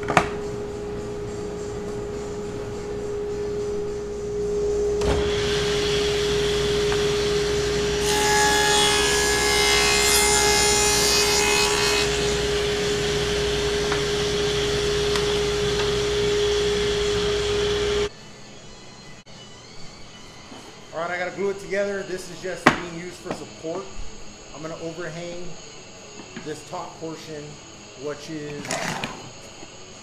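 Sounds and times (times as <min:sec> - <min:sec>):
table saw whining: 0:00.0 - 0:18.1
saw cutting through wood: 0:05.2 - 0:18.1.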